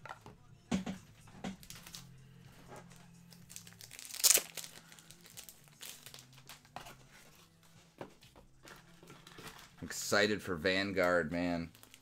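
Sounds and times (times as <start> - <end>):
plastic wrapping crinkling: 3.3 - 7.4, 11.5 - 12.0.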